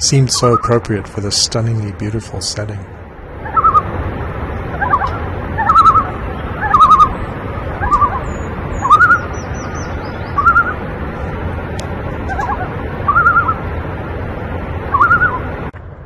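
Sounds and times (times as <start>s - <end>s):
loons tremolo calls: 0.0s - 2.7s, 3.4s - 3.9s, 4.6s - 10.9s, 12.2s - 13.7s, 14.9s - 15.5s.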